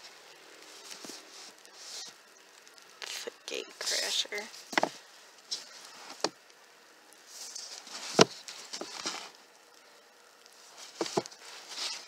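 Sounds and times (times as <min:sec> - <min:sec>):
rustling: 0:00.0 - 0:12.0
books sliding on wooden shelf: 0:07.9 - 0:09.3, 0:10.8 - 0:12.0.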